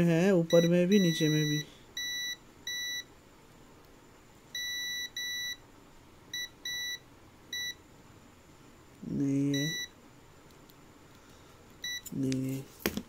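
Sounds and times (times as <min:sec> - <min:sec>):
multimeter beeping: 0:00.5 - 0:03.1, 0:04.6 - 0:05.6, 0:06.4 - 0:07.8, 0:09.5 - 0:09.9, 0:11.8 - 0:12.2.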